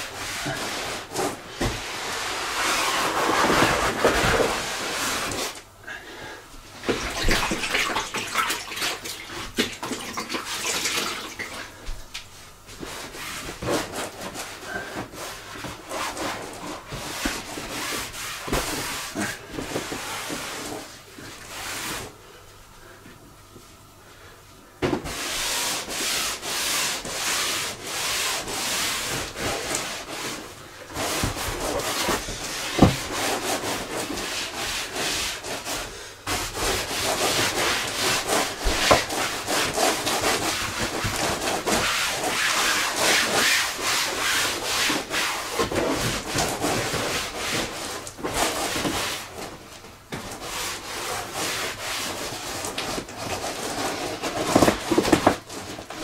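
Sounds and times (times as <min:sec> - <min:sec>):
cloth rubbing on inflatable boat: 0:00.0 - 0:05.6.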